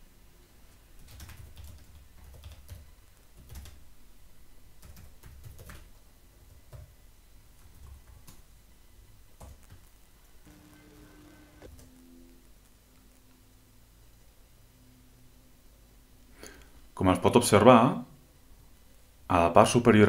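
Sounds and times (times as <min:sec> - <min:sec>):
computer keyboard typing: 0:01.0 - 0:03.8, 0:04.8 - 0:05.9, 0:06.5 - 0:06.9, 0:07.6 - 0:08.4, 0:09.4 - 0:09.8.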